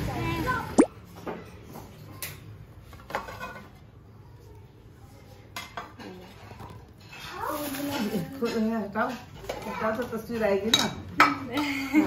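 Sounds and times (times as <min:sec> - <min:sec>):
dishes and cutlery clinking: 0:01.2 - 0:03.9, 0:05.5 - 0:12.0.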